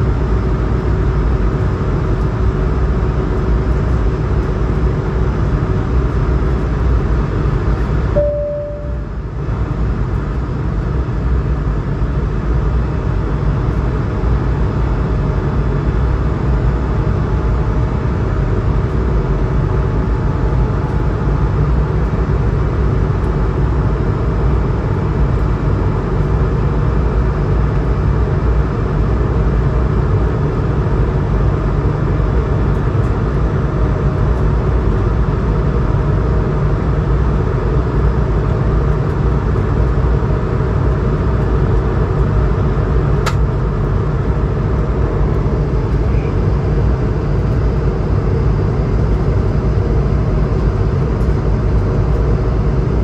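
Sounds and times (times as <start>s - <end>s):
airplane cabin roar: 0.0s - 53.0s
faint steady tones: 8.2s - 9.3s.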